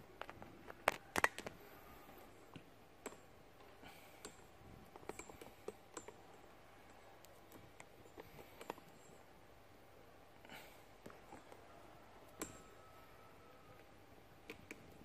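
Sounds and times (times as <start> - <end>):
faint clicks and taps: 2.4 - 9.2.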